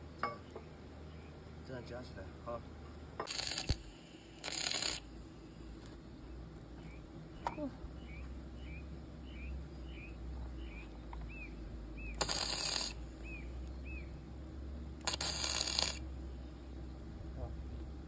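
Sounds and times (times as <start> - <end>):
welding arc hiss: 3.2 - 6.0, 12.2 - 13.7, 15.0 - 16.1.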